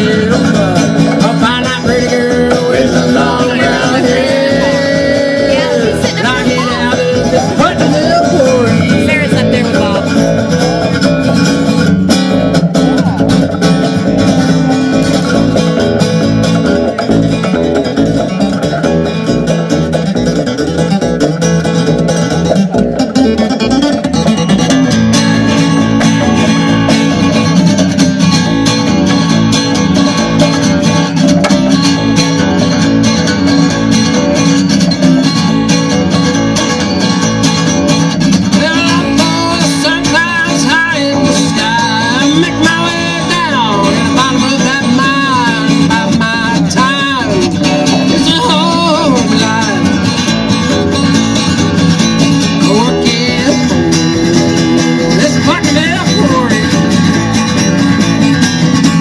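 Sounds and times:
man singing: 0.0s - 11.6s, 38.4s - 50.7s, 52.2s - 57.6s
acoustic guitar: 0.0s - 59.0s
plucked double bass: 0.0s - 59.0s.

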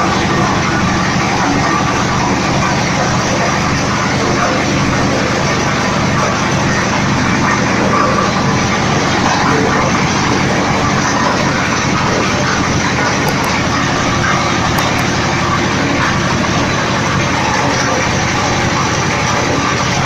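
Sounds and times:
oil expeller machine running: 0.0s - 20.0s.

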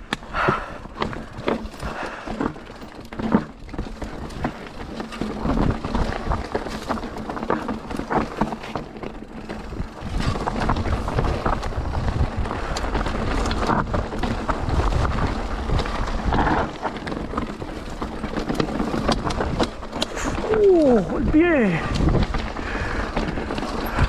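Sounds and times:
bike rattling: 0.0s - 24.0s
bike tyres rolling over stones: 0.0s - 24.0s
wind on microphone: 20.2s - 24.0s.

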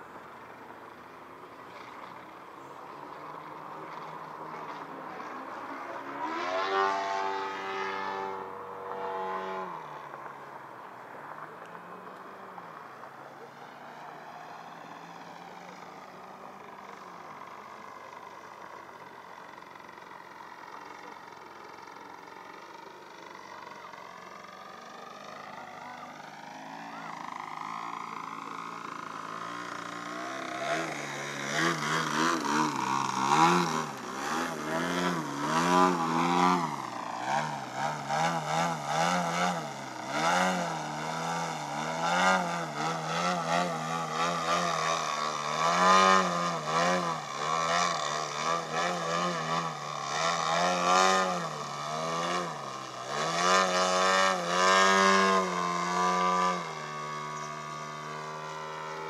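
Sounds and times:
model aeroplane engine and propeller: 0.0s - 59.0s.

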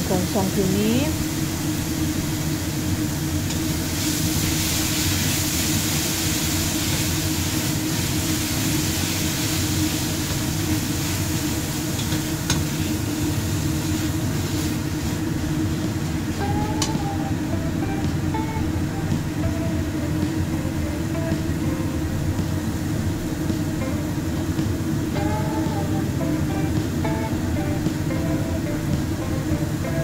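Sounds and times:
food sizzling in oil: 0.0s - 20.6s
steady low hum: 0.0s - 30.0s.

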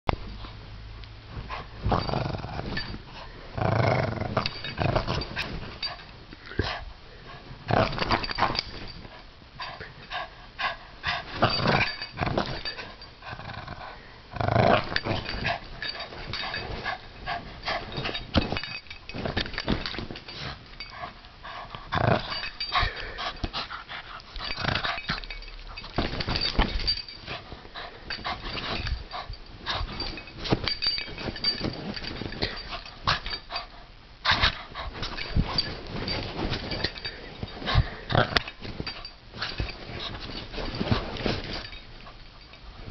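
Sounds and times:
dog growling in play: 1.8s - 2.9s, 3.5s - 5.3s, 11.4s - 15.6s, 21.9s - 22.5s, 37.7s - 38.5s
rope rustling and bumping: 24.4s - 27.5s, 34.3s - 42.2s.

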